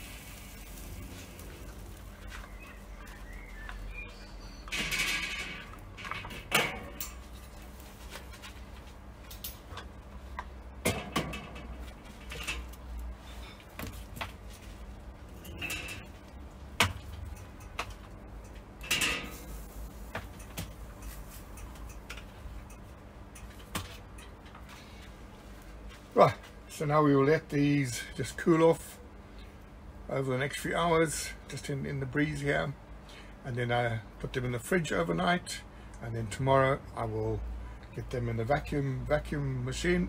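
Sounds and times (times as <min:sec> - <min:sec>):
low steady rumble: 0:00.0 - 0:40.0.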